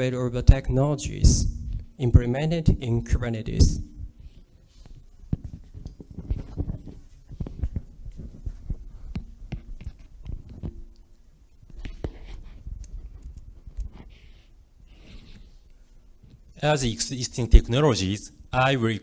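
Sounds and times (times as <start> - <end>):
microphone handling thumps: 1.0 - 2.0, 3.5 - 10.9.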